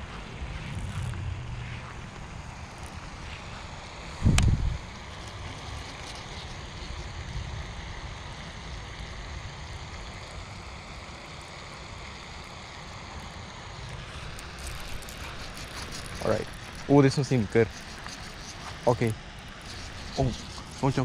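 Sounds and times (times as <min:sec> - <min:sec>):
wind buffeting microphone: 0:00.0 - 0:05.8.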